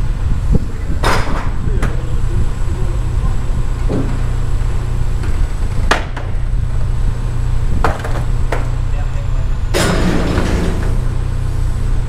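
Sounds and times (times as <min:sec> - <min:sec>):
diesel engine rumbling: 0:00.0 - 0:12.0
knocks of goods being handled: 0:07.8 - 0:08.8.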